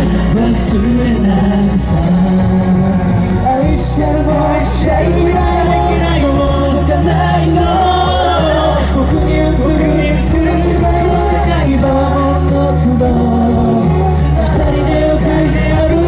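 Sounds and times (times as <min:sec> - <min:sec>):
man singing into microphone: 0:00.0 - 0:16.0
recorded pop music with bass: 0:00.0 - 0:16.0.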